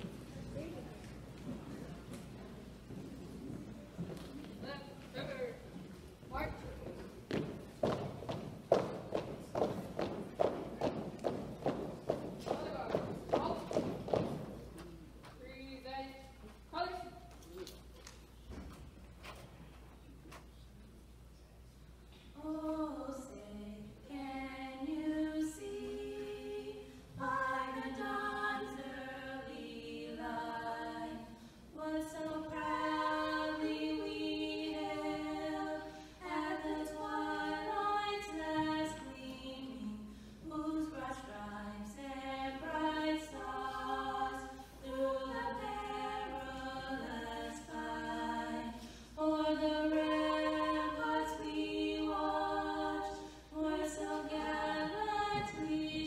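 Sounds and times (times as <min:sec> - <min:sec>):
women singing a cappella: 0:22.2 - 0:56.0.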